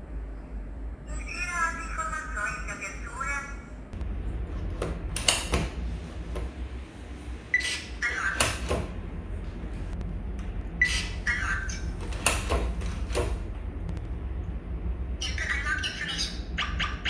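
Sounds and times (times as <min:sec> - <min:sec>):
lever handle and latch clicks: 0:04.8 - 0:05.7
electronic lock beep: 0:07.5 - 0:08.7.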